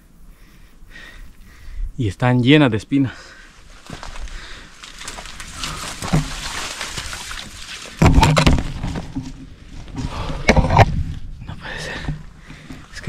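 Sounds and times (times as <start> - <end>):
footsteps in undergrowth: 3.3 - 10.1
rustling of dry brush: 3.4 - 9.9.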